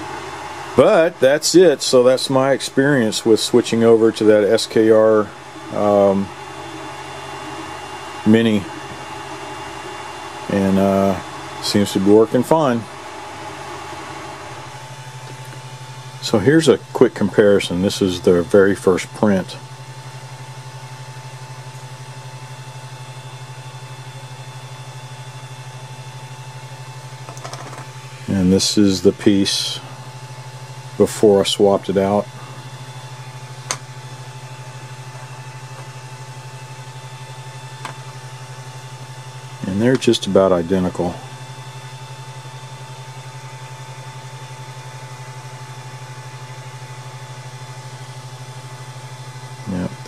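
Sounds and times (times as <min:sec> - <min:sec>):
faint high whine: 0:00.0 - 0:13.6
printer fans humming: 0:00.0 - 0:50.0.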